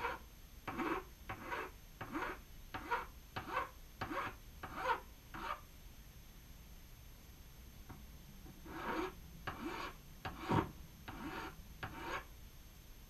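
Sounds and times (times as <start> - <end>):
file scraping metal: 0.0 - 5.6, 8.6 - 12.3.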